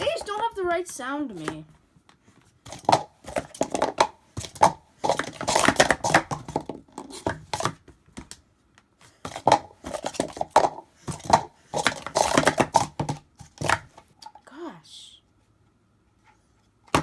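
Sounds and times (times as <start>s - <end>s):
plastic cups clacking: 2.7s - 7.8s, 9.2s - 14.4s.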